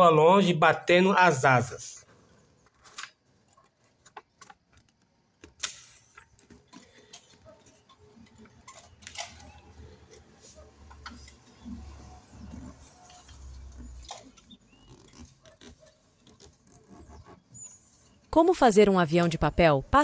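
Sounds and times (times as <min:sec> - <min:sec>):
paper folding and rustling: 0:02.5 - 0:18.0.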